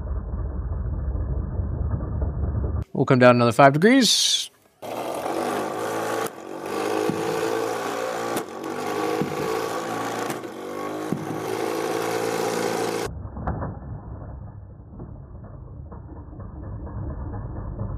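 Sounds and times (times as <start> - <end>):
dull low rumble: 0.0 - 2.8, 13.1 - 17.9
electric motor whine: 4.8 - 13.1.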